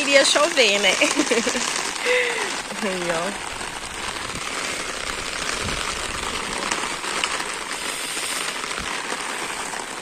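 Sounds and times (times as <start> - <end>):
heavy rain on ground: 0.0 - 10.0.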